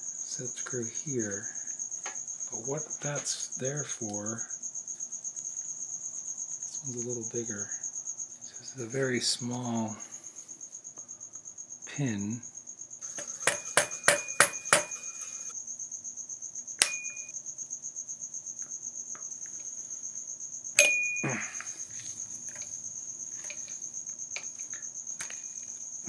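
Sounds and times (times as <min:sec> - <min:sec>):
cricket trill: 0:00.0 - 0:26.0
metal taps of a pin punch: 0:16.8 - 0:17.2.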